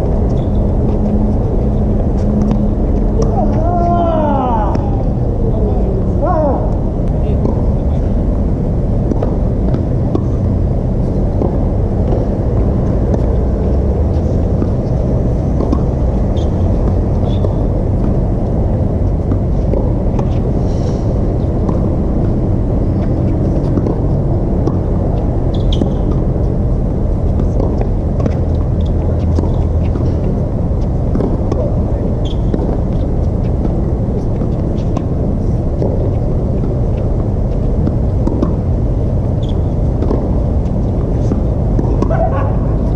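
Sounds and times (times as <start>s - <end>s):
steady low rumble: 0.0s - 42.9s
shoe squeaks: 0.3s - 1.1s, 16.3s - 16.6s, 17.2s - 17.6s, 25.5s - 26.1s, 32.2s - 32.5s, 39.4s - 39.8s
tennis ball hits: 31.0s - 33.8s, 34.4s - 38.8s, 39.4s - 42.9s.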